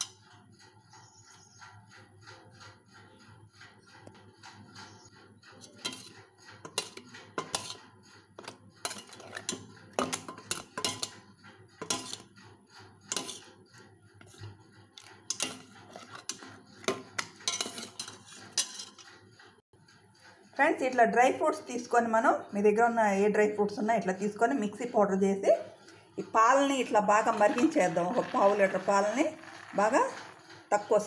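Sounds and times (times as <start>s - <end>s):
spoon clinking against saucepan: 8.4s - 11.1s.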